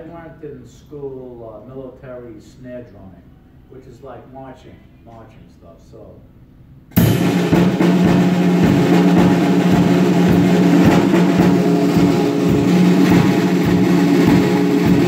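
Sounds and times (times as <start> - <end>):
bass drum: 6.9 - 15.0
fast snare drumming: 6.9 - 15.0.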